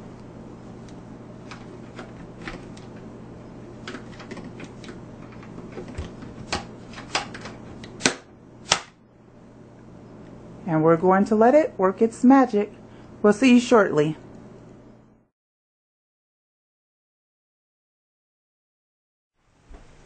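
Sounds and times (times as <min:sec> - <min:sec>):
faint steady hum: 0:00.0 - 0:15.3
loud sharp clicks: 0:07.1 - 0:09.0.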